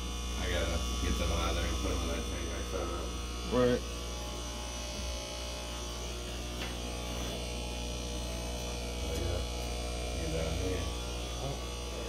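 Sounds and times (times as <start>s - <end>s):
aquarium air pumps humming: 0.0s - 12.0s.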